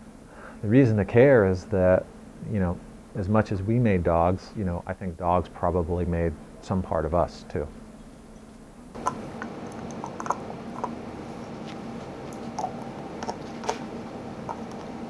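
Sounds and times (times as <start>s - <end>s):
low room hum: 0.0s - 15.0s
dog crunching chew bone: 9.0s - 15.0s.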